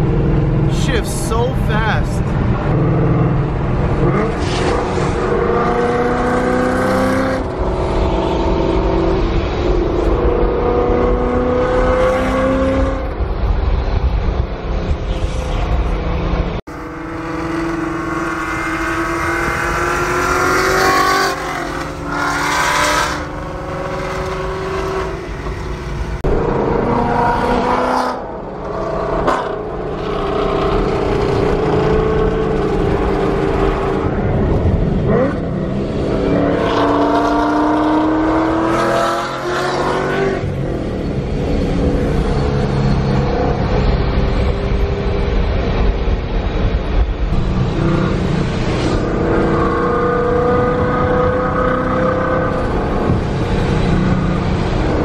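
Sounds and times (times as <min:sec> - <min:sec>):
road rumble: 0:00.0 - 0:55.0
car engine revving through gears: 0:02.6 - 0:13.1, 0:16.7 - 0:45.8, 0:47.3 - 0:55.0.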